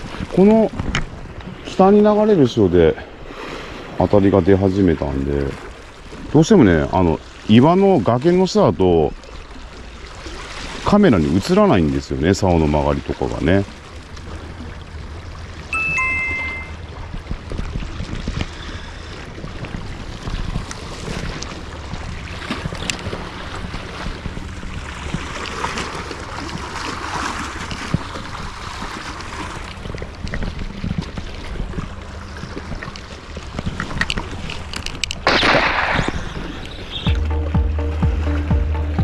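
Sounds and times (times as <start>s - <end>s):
wind on microphone: 16.8s - 37.3s.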